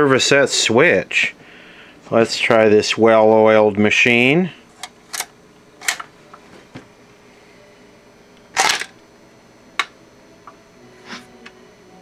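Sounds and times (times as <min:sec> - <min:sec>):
mechanism clatter: 0:04.8 - 0:06.1, 0:08.5 - 0:09.0.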